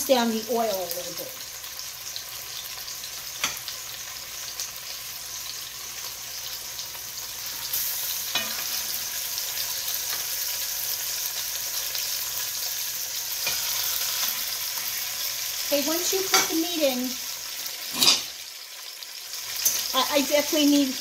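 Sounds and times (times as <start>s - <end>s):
meat sizzling in a pot: 0.0s - 21.0s.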